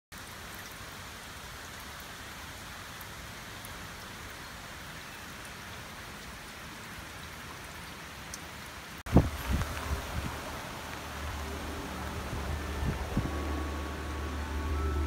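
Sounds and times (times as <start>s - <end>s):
rain falling: 0.1s - 15.0s
raindrop ticks: 0.2s - 2.2s, 7.1s - 14.3s.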